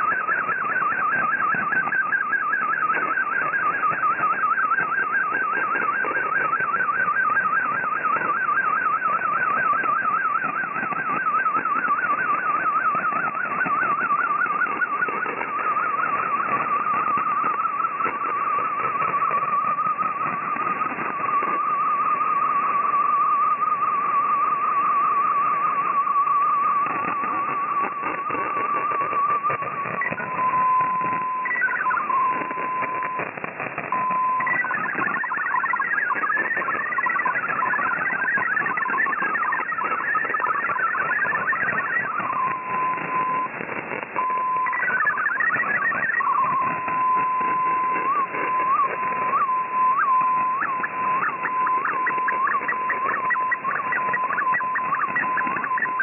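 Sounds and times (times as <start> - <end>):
chatter of hopping tones: 0.0 - 56.0
warbling data tone: 0.0 - 56.0
static hiss: 11.8 - 56.0.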